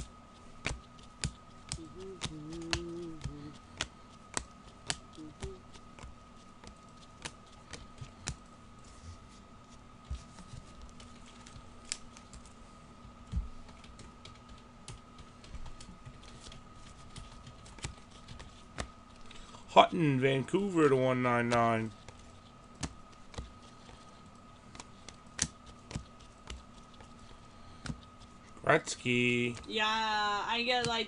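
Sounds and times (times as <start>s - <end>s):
cards clicking and snapping: 0.0s - 8.4s, 10.9s - 12.6s, 13.6s - 19.4s, 21.4s - 28.4s
faint electrical hum: 0.0s - 31.0s.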